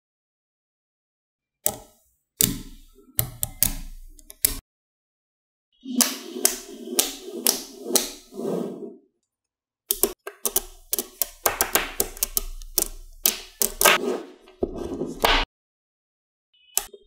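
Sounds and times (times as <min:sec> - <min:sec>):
magnetic balls clicking together: 0:09.9 - 0:14.0.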